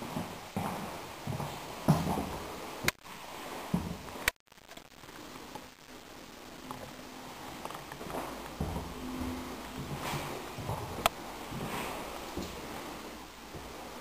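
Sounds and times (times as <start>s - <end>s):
footsteps on laminate floor: 0.0s - 3.0s, 3.7s - 4.1s, 8.0s - 14.0s.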